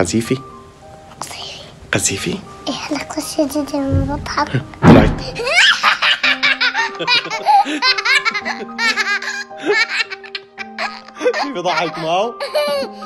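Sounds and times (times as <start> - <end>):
man laughing: 5.4 - 13.0
toddler girl laughing: 5.4 - 13.0.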